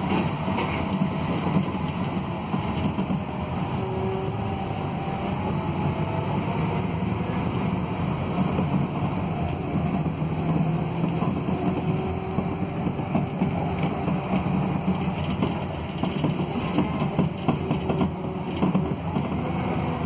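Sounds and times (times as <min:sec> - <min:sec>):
bus engine low hum: 0:00.0 - 0:20.0
knocks and rattles: 0:12.8 - 0:19.4.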